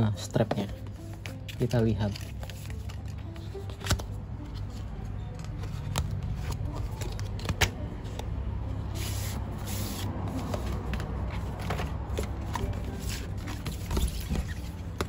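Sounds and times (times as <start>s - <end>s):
paper sleeve sliding off box: 8.9s - 10.9s.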